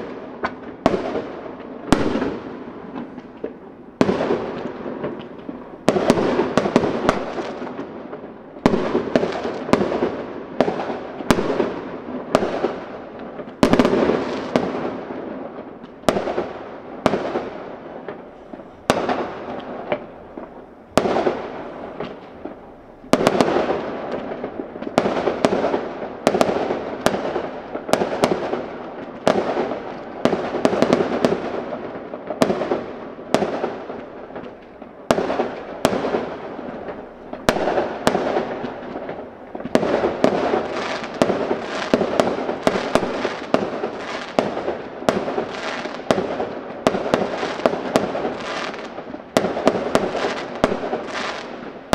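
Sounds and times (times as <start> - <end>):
firework shells bursting: 0.0 - 32.8.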